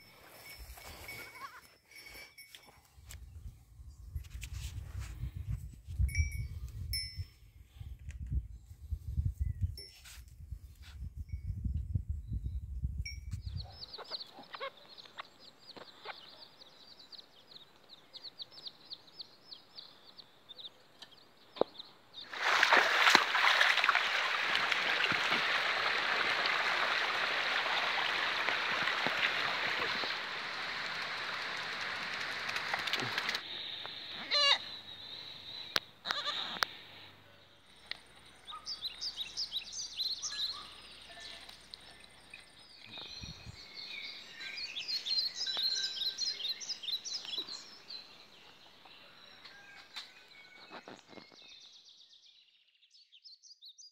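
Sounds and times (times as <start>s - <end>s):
scattered calls and clicks: 25.0s - 34.9s, 35.5s - 37.0s
loud steady hiss: 26.1s - 35.7s.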